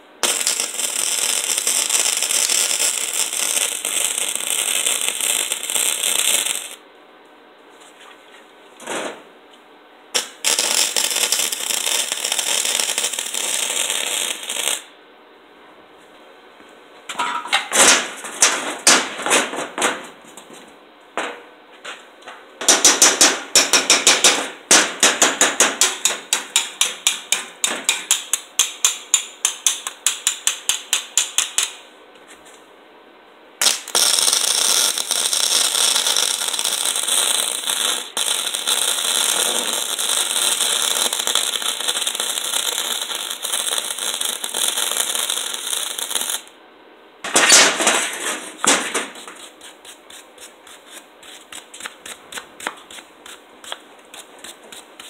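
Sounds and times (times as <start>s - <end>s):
welder arc crackling sizzle: 0.0s - 6.8s, 10.2s - 14.9s, 33.6s - 46.6s.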